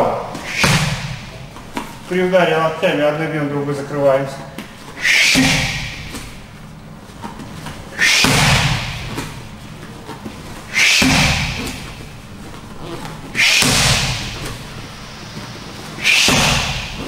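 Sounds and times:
elbow strikes smacking pads: 0:00.5 - 0:01.3, 0:08.0 - 0:09.2, 0:10.8 - 0:11.8, 0:13.4 - 0:14.6, 0:16.0 - 0:17.0.

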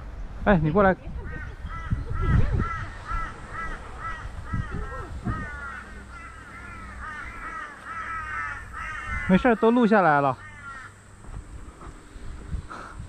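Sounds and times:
bird calling: 0:01.2 - 0:11.1.

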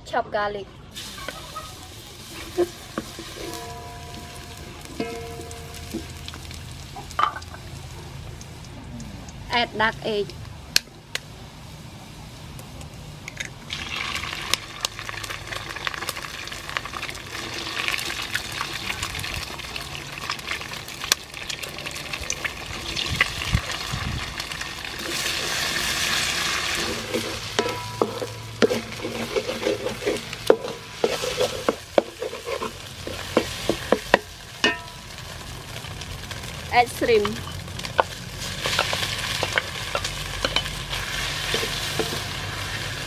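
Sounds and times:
egg sizzling in hot oil: 0:00.9 - 0:10.1, 0:13.6 - 0:43.0
utensil scraping and knocking pan: 0:26.8 - 0:34.9.

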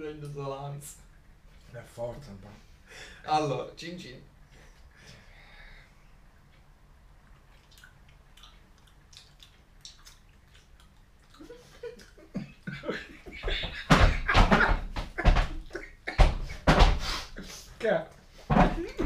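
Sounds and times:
chewing: 0:07.2 - 0:12.6
mouth clicks: 0:07.3 - 0:12.2
men laughing loudly: 0:11.5 - 0:16.9, 0:18.6 - 0:19.0.

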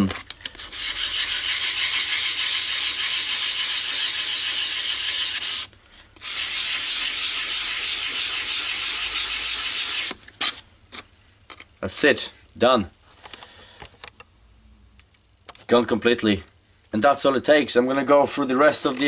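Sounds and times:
wet sandpaper rubbing: 0:00.6 - 0:10.6.

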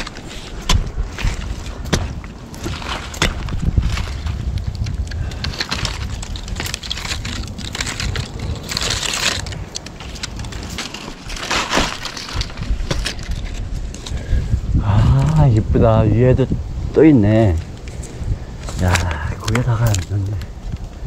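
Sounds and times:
bark and twigs crunching: 0:00.0 - 0:14.5, 0:17.1 - 0:21.0
climbing spikes scraping tree bark: 0:00.0 - 0:21.0.

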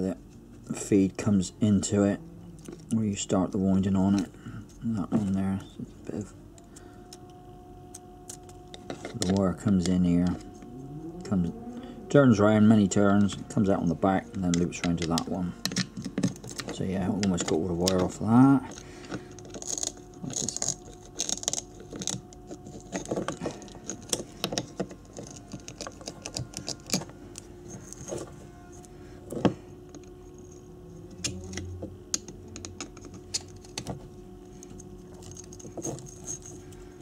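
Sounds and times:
faint steady hum: 0:00.0 - 0:37.0
screwdriver scratching metal wire: 0:12.9 - 0:28.9, 0:35.1 - 0:36.7.

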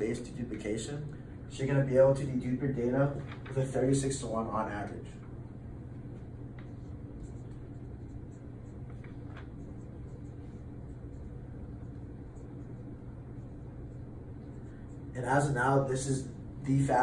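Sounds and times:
low room hum: 0:00.0 - 0:17.0
marker writing on a whiteboard: 0:06.2 - 0:16.1.

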